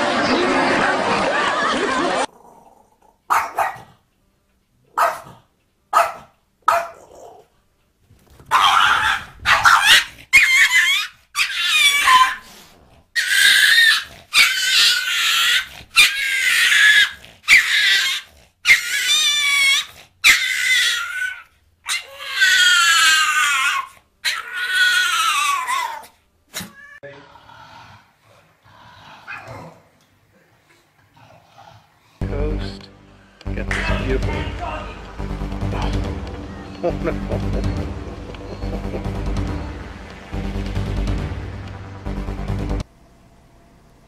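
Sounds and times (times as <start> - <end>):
dog barking: 3.3 - 4.0, 4.9 - 7.4, 8.5 - 12.4
dog yelping and whining: 8.5 - 27.0.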